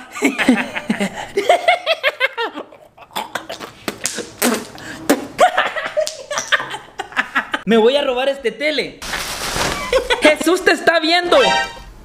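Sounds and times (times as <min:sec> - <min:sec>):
person giggling: 0:00.0 - 0:04.7, 0:05.4 - 0:07.6.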